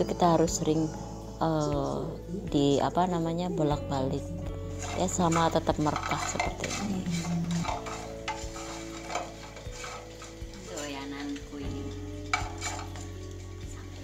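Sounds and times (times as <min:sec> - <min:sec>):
faint sizzle: 0:06.0 - 0:14.0
utensil clinking in frying pan: 0:07.6 - 0:13.4.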